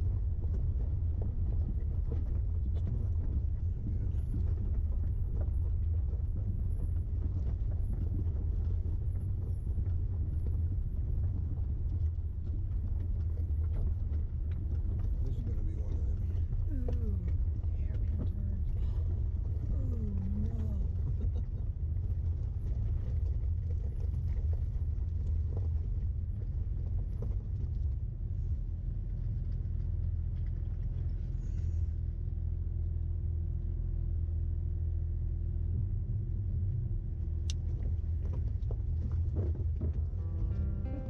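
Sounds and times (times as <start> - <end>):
engine and road rumble: 0.0 - 41.0
faint steady hum: 0.0 - 41.0.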